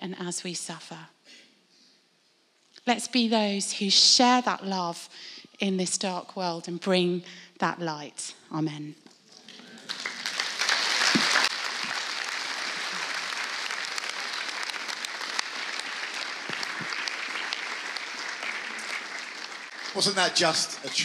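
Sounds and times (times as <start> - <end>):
crowd applauding: 9.5 - 21.0.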